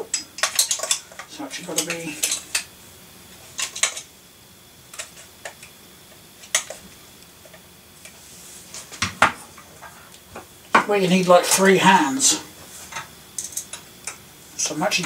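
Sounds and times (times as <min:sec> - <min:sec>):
hard drive clicks and clinks: 0:00.0 - 0:02.8, 0:03.4 - 0:04.2, 0:04.8 - 0:08.2, 0:12.9 - 0:15.0.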